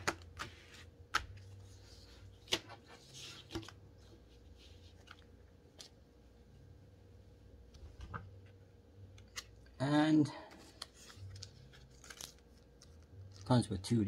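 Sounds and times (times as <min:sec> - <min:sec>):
steady low hum: 0:00.0 - 0:14.0
paper and packaging rustling: 0:10.6 - 0:13.6.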